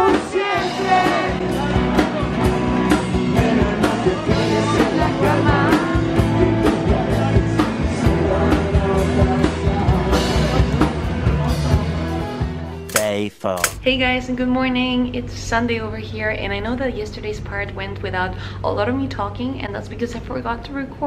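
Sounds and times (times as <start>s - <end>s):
electric guitars: 0.0s - 13.0s
bass guitar: 0.0s - 13.9s
person singing: 3.1s - 10.9s
drum kit beat: 12.9s - 13.8s.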